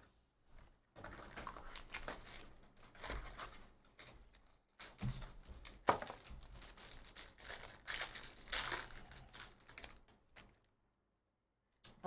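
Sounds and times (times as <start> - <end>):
wrapper crinkling and tearing: 1.0 - 10.6.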